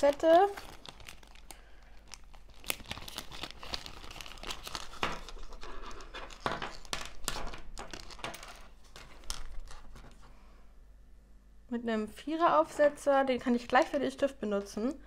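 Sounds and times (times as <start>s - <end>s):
plastic bag crinkling: 0.0s - 10.3s.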